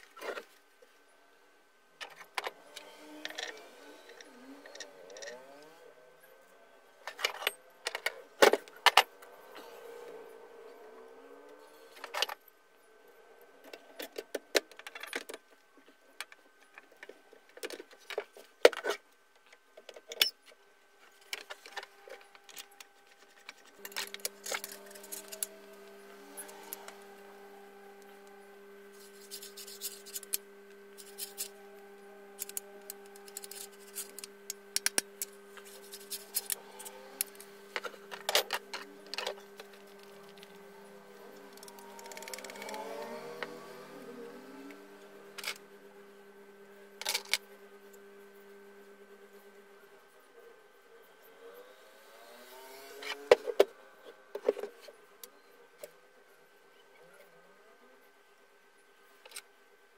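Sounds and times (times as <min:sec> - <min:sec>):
clicks and metallic clinks of parts: 0:16.2 - 0:20.6, 0:21.2 - 0:25.8, 0:31.0 - 0:31.6, 0:32.4 - 0:40.6, 0:41.5 - 0:43.6, 0:47.0 - 0:47.4.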